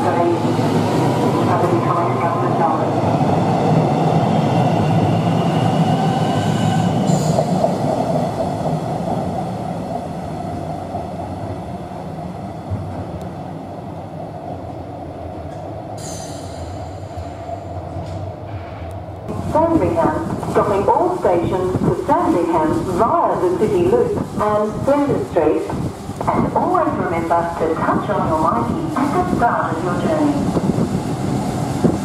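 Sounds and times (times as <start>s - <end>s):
electric train rumbling: 0.0s - 32.0s
train wheel squealing: 4.8s - 7.6s, 16.0s - 17.7s.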